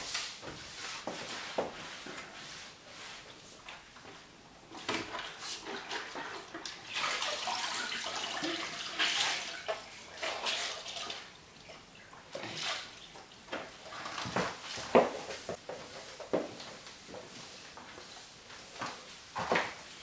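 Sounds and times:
mop sloshing in bucket of water: 4.8s - 11.4s, 12.2s - 14.8s.

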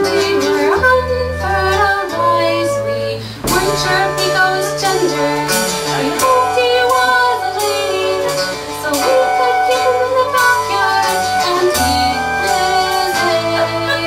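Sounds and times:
drums: 0.0s - 14.0s
flute melody: 0.0s - 14.0s
electric bass: 0.8s - 14.0s
acoustic guitar strumming: 3.3s - 14.0s.

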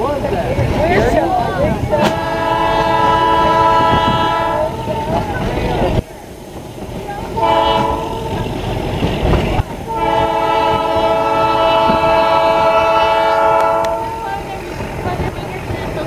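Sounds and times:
moving train rumbling: 0.0s - 16.0s
train whistle blasts: 2.0s - 5.2s, 7.4s - 8.4s, 9.9s - 14.3s.

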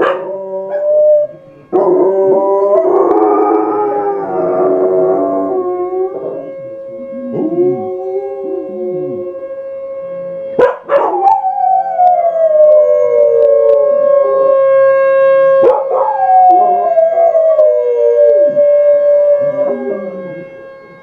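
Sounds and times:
dog howling: 0.0s - 9.5s, 10.6s - 14.7s, 15.6s - 20.5s
steady high tone: 0.0s - 14.4s.

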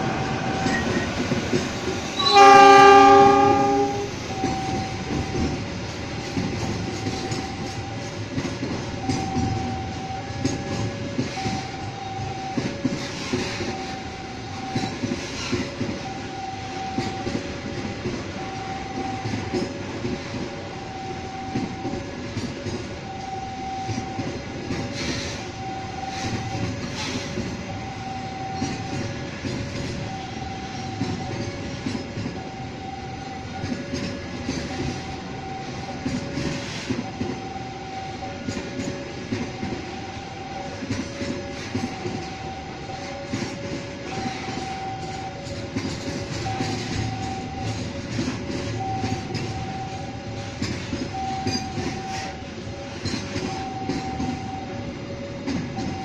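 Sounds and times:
train wheels rumbling over rails: 0.0s - 56.0s
two-tone warning signal: 2.2s - 5.7s, 6.4s - 19.8s, 20.6s - 56.0s.

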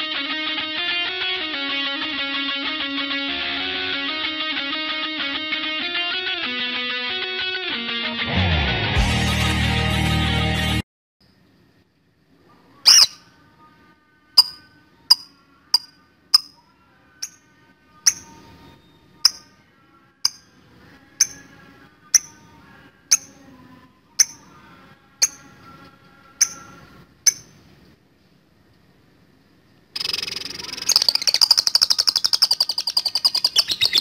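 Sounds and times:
soft bird twittering: 12.8s - 13.3s, 18.1s - 19.5s, 26.4s - 27.6s, 30.0s - 34.0s
bird giving sharp high chirps: 12.9s - 13.2s, 18.1s - 19.5s, 26.4s - 27.6s, 30.0s - 34.0s.

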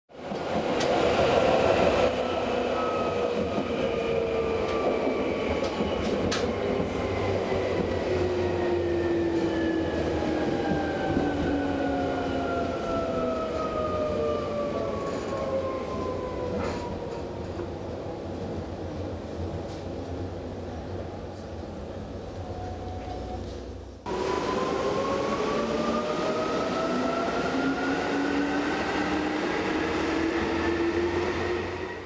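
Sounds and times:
train wheels rumbling on track: 0.1s - 20.1s.

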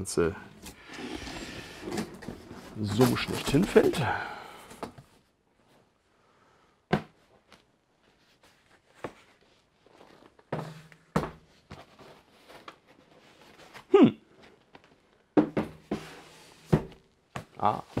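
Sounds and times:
cardboard handling noise: 0.6s - 5.3s, 7.1s - 18.0s
cardboard boxes knocking on table: 15.4s - 18.0s.

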